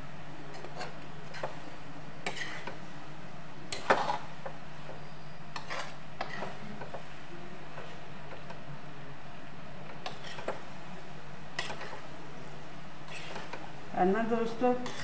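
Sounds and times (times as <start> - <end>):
steady low hum: 0.0 - 15.0
metal spatula scraping a wok: 2.2 - 2.8, 3.7 - 4.3, 5.5 - 6.7, 10.0 - 10.5, 11.6 - 12.0, 13.0 - 13.6, 14.7 - 15.0.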